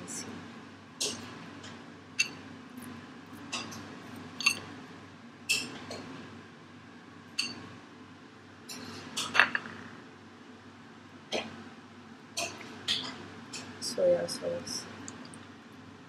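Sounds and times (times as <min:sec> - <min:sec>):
spoon clinking on glass: 0:02.2 - 0:02.4, 0:04.4 - 0:04.6, 0:07.4 - 0:07.6.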